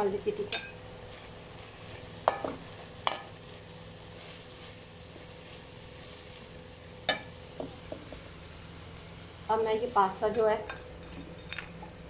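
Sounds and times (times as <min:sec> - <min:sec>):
food sizzling in a frying pan: 0:00.0 - 0:12.0
spoon knocking against pan: 0:02.2 - 0:03.3, 0:07.1 - 0:08.2.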